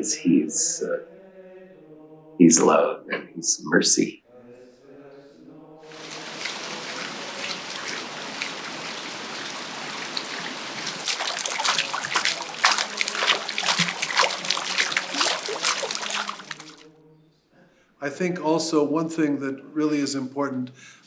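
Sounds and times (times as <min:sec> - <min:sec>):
water trickling and splashing: 0:05.9 - 0:16.9.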